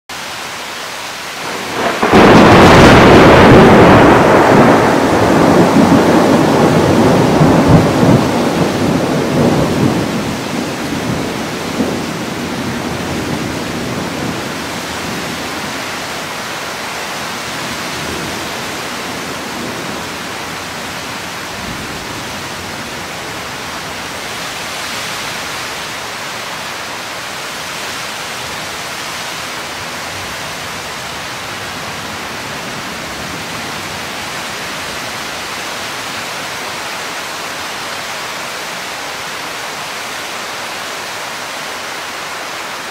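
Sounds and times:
heavy rain hissing: 0.2 - 42.9
thunder rumbling: 1.4 - 24.2.

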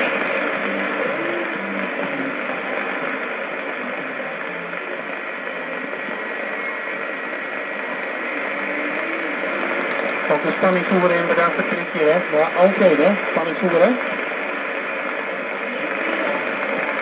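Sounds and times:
faint radio tones: 0.0 - 17.0
radio static hiss: 0.0 - 17.0.

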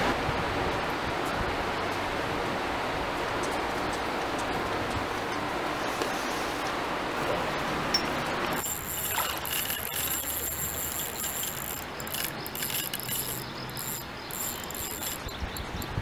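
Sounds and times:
high-pitched insect buzz: 8.6 - 15.3.

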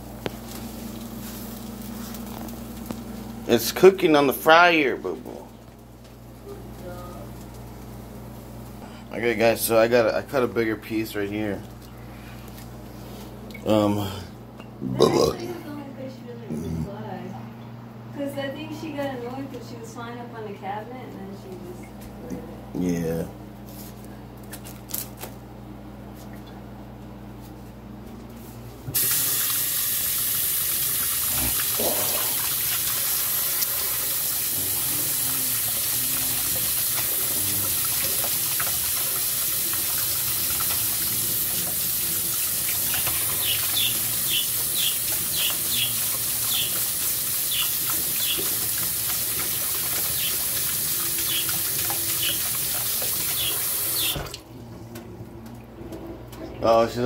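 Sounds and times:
water running into steel sink: 29.0 - 54.4.

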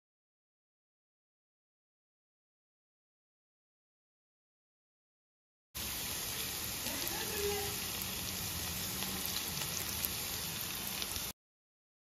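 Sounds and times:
onions and garlic sizzling in oil: 5.8 - 11.4.

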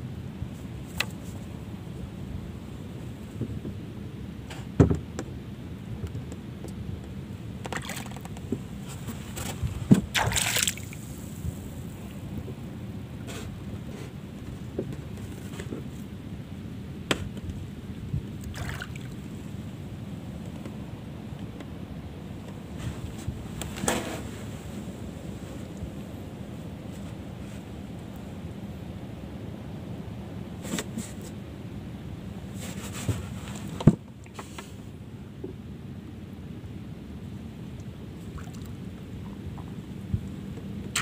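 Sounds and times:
wind rumble on microphone: 0.0 - 41.0
knocks on wooden boat: 4.8 - 5.3
water lapping against boat hull: 7.6 - 11.0, 18.4 - 19.4
water noise: 7.6 - 13.2, 18.2 - 20.4, 37.8 - 41.0
dull thump: 9.4 - 10.4.

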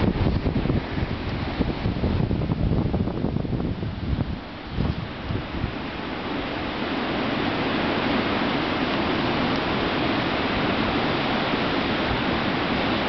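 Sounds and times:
sea wind rushing: 0.0 - 13.0
distant breaking surf: 3.9 - 13.0.

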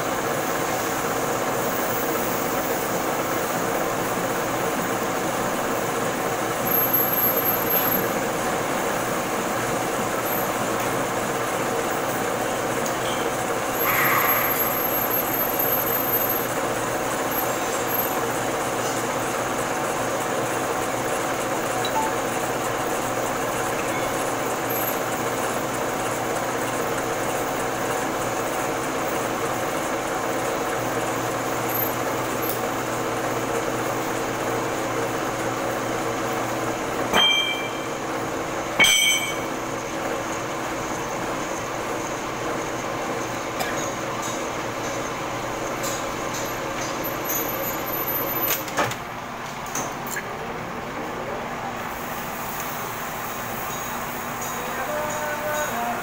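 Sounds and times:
sharp metallic clinks: 37.1 - 37.9, 38.8 - 39.5.

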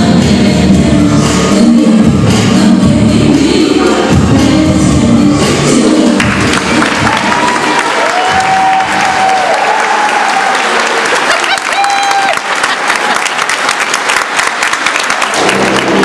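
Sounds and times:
audience clapping: 6.2 - 16.0
whoops and shouts: 7.0 - 12.5.

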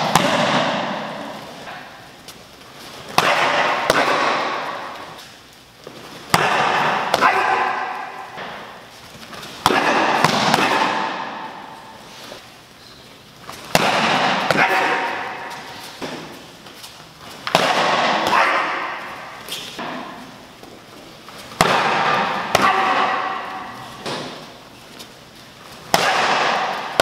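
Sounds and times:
kicks slapping kick paddle: 0.0 - 1.2, 3.1 - 5.2, 6.3 - 7.8, 9.6 - 11.4, 13.7 - 16.3, 17.4 - 18.4, 21.6 - 23.2, 25.9 - 27.0.

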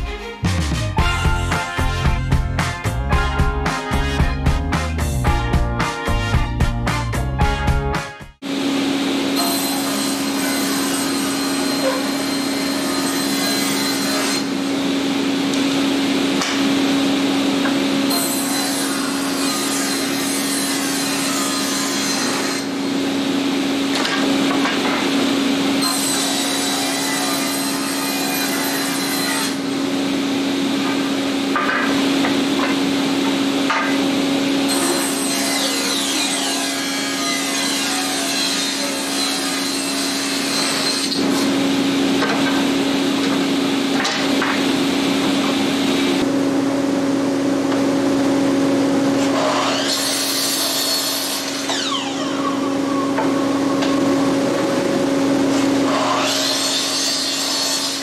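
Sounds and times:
table saw ripping boards: 9.4 - 14.7, 16.3 - 23.0, 23.8 - 46.2, 49.2 - 54.0, 55.4 - 58.0.

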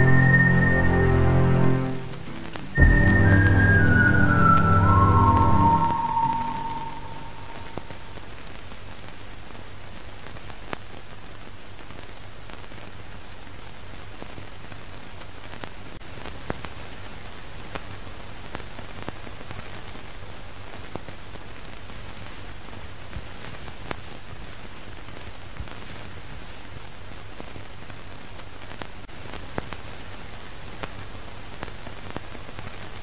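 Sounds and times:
crackling hiss: 0.0 - 33.0.

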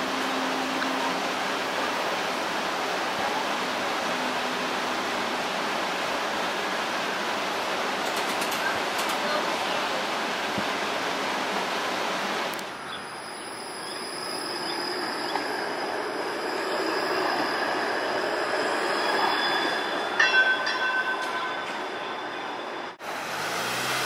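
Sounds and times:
streetcar wheels squealing: 12.7 - 23.0.

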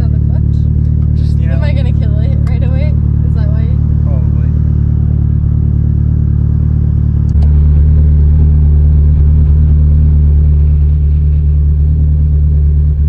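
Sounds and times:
car engine drone in cabin: 0.0 - 13.0.

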